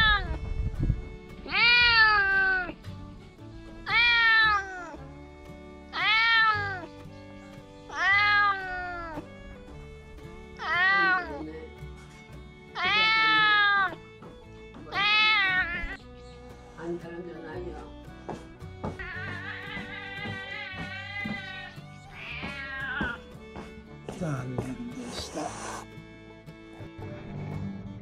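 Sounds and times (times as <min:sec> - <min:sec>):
cat meowing: 0:00.0 - 0:00.4, 0:01.5 - 0:02.8, 0:03.9 - 0:05.1, 0:05.9 - 0:07.0, 0:07.9 - 0:09.2, 0:10.6 - 0:11.4, 0:12.8 - 0:14.0, 0:14.9 - 0:16.0, 0:19.0 - 0:23.2
soft background music: 0:00.0 - 0:28.0.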